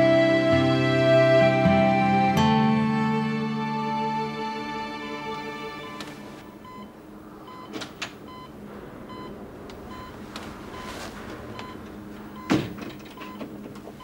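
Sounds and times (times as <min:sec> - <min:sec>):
patient monitor beeping: 0:05.9 - 0:14.0.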